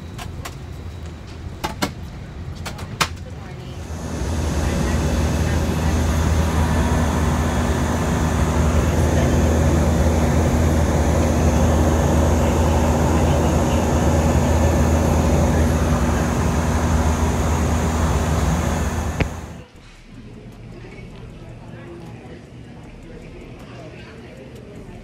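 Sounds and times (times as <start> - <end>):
jet airliner cabin noise: 0.0 - 19.6.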